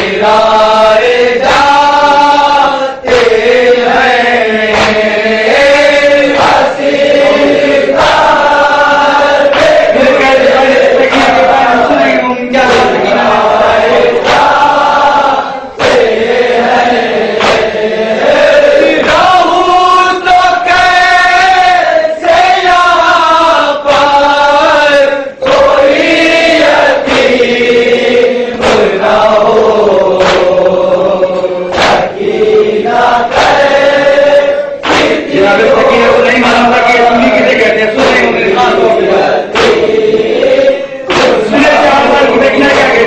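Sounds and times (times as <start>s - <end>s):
men chanting a lament: 0.0s - 43.0s
hands striking chests: 4.6s - 8.4s, 17.3s - 17.8s, 30.1s - 30.8s, 31.7s - 32.2s, 34.8s - 43.0s.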